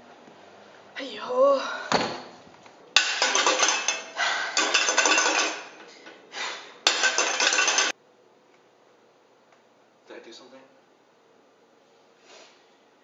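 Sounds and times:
metal spoon clinking in saucepan: 0:03.0 - 0:05.8, 0:06.9 - 0:07.9.

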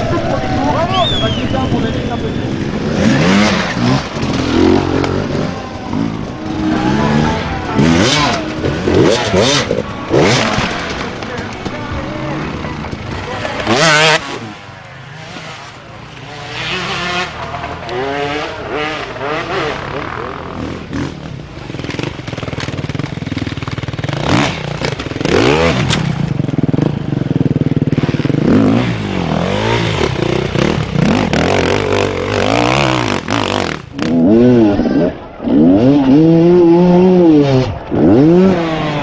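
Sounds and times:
dirt bike engines revving: 0:00.0 - 0:39.0.

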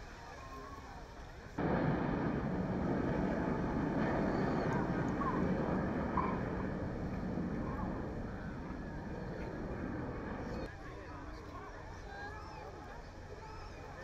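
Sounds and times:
jets flying overhead: 0:01.6 - 0:10.7
distant voices: 0:01.6 - 0:14.0.

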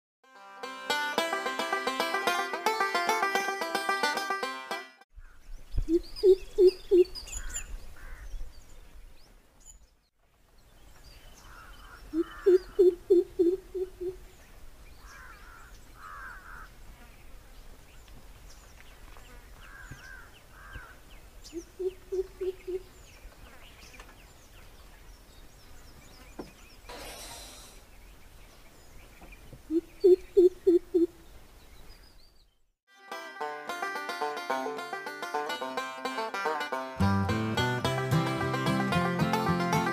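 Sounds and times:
small birds chirping: 0:05.1 - 0:32.7
bird deep hooting call: 0:05.2 - 0:08.3, 0:11.5 - 0:14.2, 0:21.5 - 0:22.9, 0:29.7 - 0:31.2.

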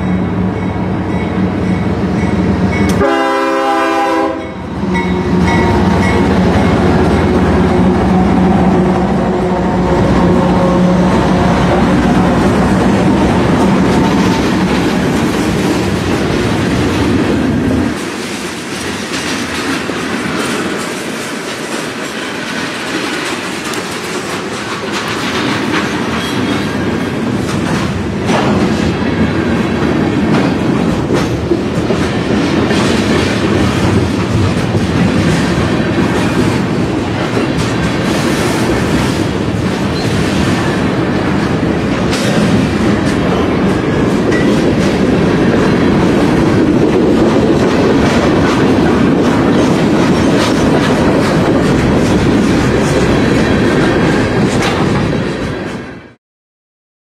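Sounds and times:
locomotive heavy drone: 0:00.0 - 0:56.1
locomotive horn blast: 0:02.9 - 0:12.8.

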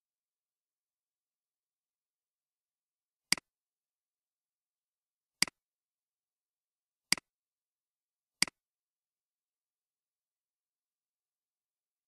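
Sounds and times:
computer mouse clicks: 0:03.3 - 0:03.5, 0:07.1 - 0:07.3.

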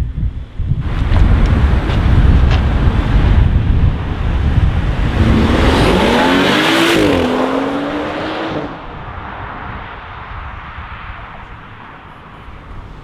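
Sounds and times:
distant traffic: 0:00.9 - 0:13.0
car engine accelerating hard: 0:02.7 - 0:08.9.

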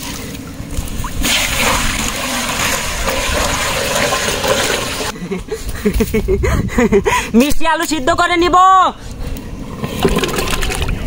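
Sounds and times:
water pouring into a metal pot: 0:01.2 - 0:05.1.

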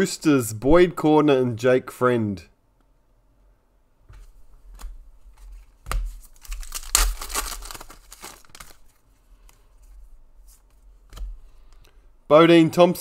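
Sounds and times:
wrapper crinkling: 0:05.6 - 0:09.1
foil card pack tearing: 0:06.3 - 0:08.9.

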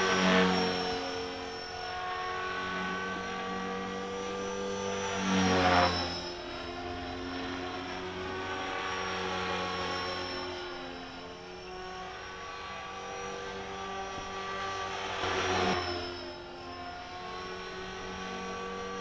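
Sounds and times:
rc helicopter rotor whine: 0:00.0 - 0:19.0.

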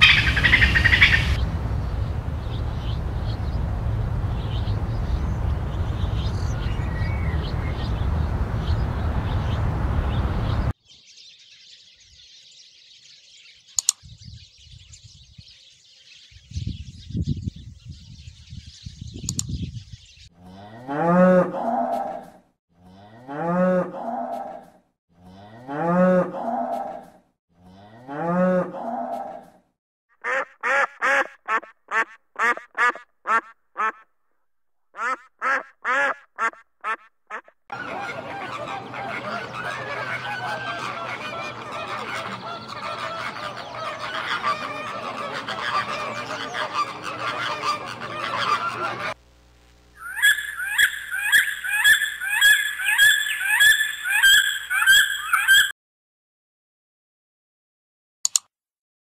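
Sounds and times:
ducks quacking: 0:00.0 - 0:01.4, 0:30.2 - 0:34.0, 0:35.0 - 0:49.2, 0:50.0 - 0:55.7
long rising and falling animal calls: 0:00.0 - 0:01.4, 0:50.0 - 0:55.7
many animals calling: 0:00.0 - 0:01.4, 0:36.4 - 0:49.2, 0:50.0 - 0:55.7.

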